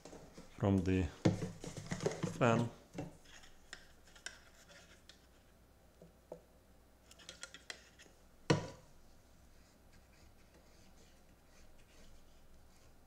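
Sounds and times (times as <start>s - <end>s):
plastic bottle handled: 0.0s - 5.2s.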